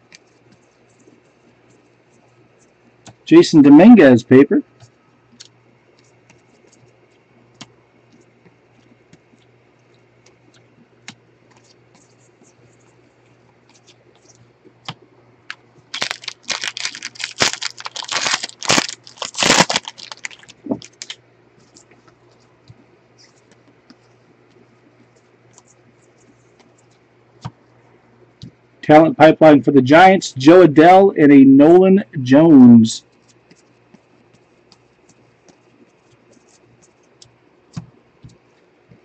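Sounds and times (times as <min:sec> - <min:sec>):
foil wrapper tearing and crinkling: 0:15.9 - 0:21.2.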